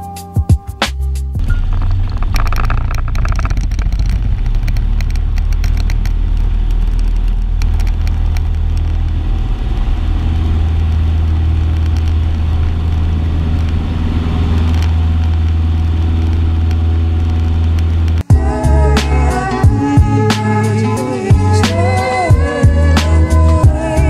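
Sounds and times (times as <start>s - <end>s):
airplane engine and propeller: 1.4s - 18.3s.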